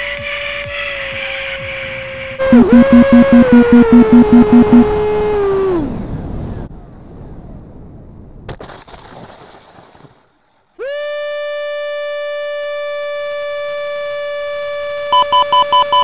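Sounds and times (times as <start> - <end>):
music with falling pitch: 2.4 - 5.0
electronic warning tone: 2.4 - 5.2, 15.1 - 16.0.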